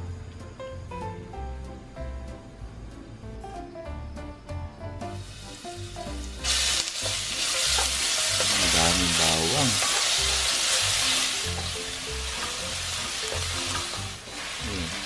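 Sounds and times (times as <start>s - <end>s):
garlic sizzling in oil: 5.0s - 15.0s.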